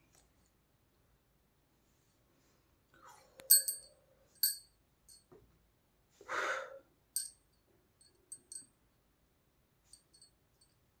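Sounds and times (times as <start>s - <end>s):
light metallic clinks: 3.4s - 5.3s, 7.2s - 8.8s, 9.9s - 10.9s
breathy exhale: 6.2s - 6.9s.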